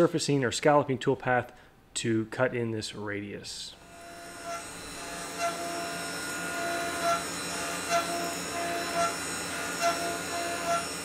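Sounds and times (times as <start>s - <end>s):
milling machine cutting metal: 3.9s - 11.0s.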